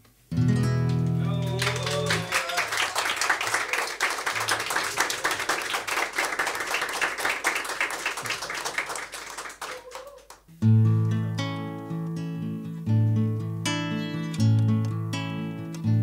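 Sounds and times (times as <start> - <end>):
hands clapping: 0.8 - 10.5.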